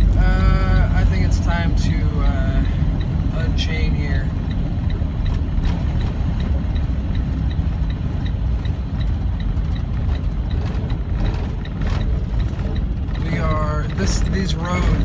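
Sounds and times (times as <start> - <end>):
tire chains ticking: 0.0 - 15.0
truck engine and road rumble: 0.0 - 15.0.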